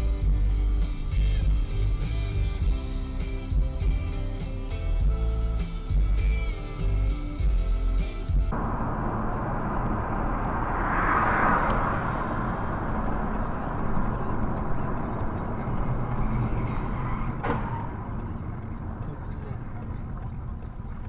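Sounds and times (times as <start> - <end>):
vehicle and road noise: 8.5 - 21.0.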